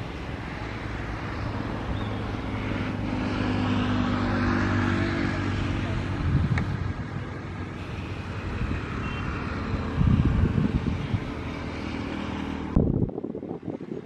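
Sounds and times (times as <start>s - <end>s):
rushing noise: 0.0s - 13.1s
diesel locomotive engine drone: 0.0s - 14.0s
wind noise on microphone: 5.6s - 14.0s.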